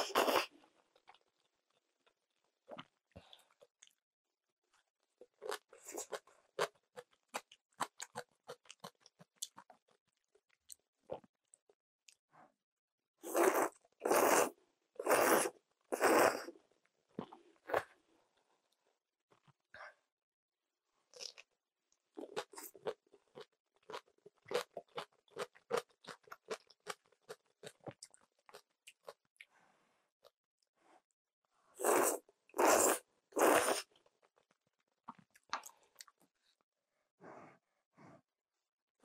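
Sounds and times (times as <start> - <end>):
slurping noodles: 0.0 - 0.5, 13.2 - 16.5, 31.8 - 34.0
chewing crunchy cabbage: 4.7 - 11.3, 22.1 - 29.3, 31.8 - 36.2.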